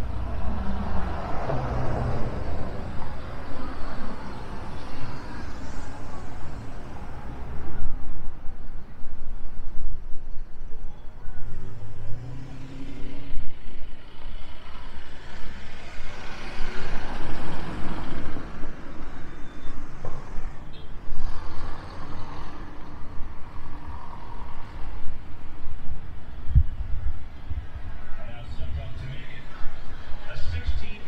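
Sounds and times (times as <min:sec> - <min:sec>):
street traffic passing: 0:00.0 - 0:31.0.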